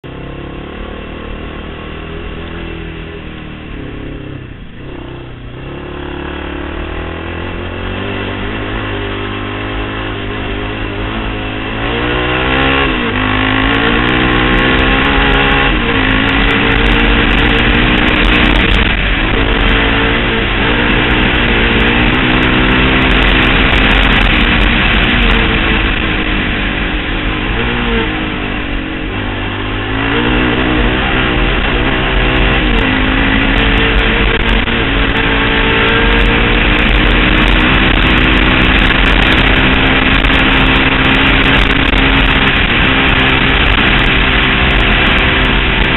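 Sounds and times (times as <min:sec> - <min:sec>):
quad engine revving: 0:00.0 - 0:45.9
wind rumble on camera: 0:00.0 - 0:45.9.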